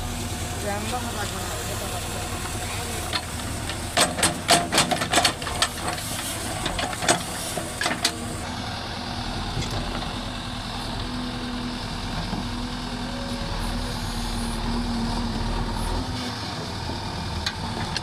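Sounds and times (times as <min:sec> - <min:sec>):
diesel engine running: 0:00.0 - 0:18.0
sharp knocks and clanks: 0:03.1 - 0:06.0.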